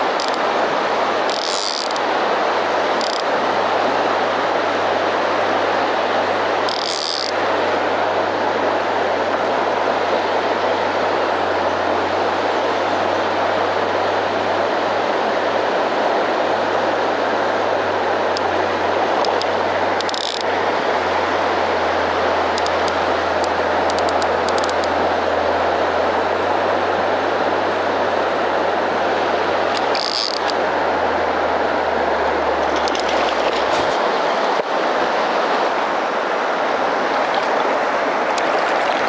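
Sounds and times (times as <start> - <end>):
river current rushing: 0.0 - 39.0
brief splashing or scraping: 32.6 - 34.2.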